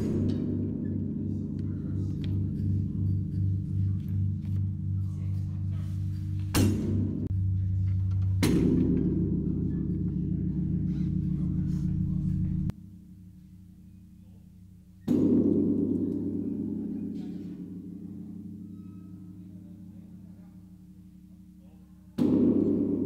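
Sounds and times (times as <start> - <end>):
deep lingering bell hum: 0.0 - 22.1
large bell struck: 8.3 - 12.7.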